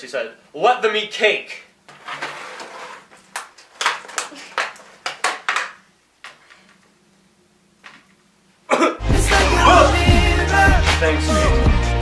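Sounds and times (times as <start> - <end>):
plastic container crinkling and snapping: 3.1 - 6.8.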